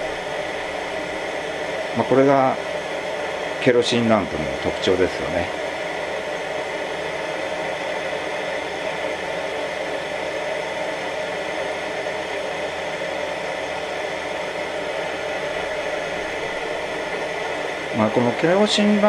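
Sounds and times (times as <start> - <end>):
pressure lamp burner hissing: 0.0 - 19.0.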